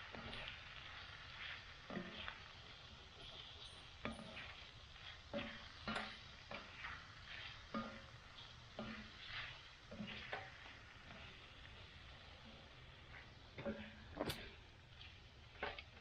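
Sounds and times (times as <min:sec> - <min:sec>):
food sizzling: 0:00.0 - 0:16.0
utensil scraping cast iron pan: 0:03.3 - 0:11.4.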